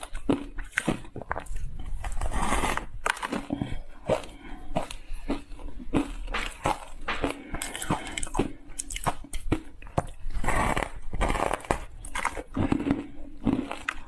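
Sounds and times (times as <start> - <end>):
ice crunching while chewed: 0.0 - 14.0.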